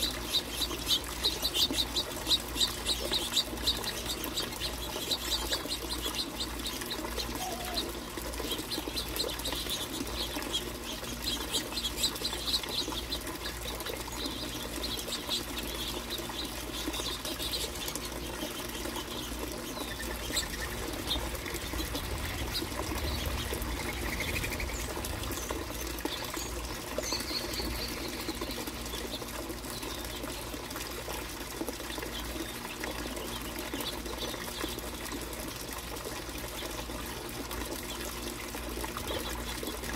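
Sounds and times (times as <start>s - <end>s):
low background rush: 0.1s - 29.1s
wing flutters: 0.2s - 28.4s.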